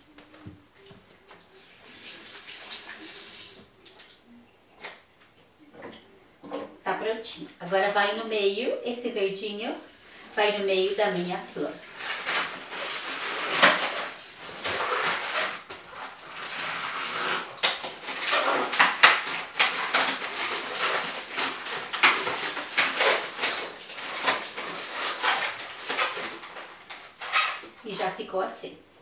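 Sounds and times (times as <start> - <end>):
balloons squeaking and rubbing: 1.5 - 3.6, 9.9 - 28.2.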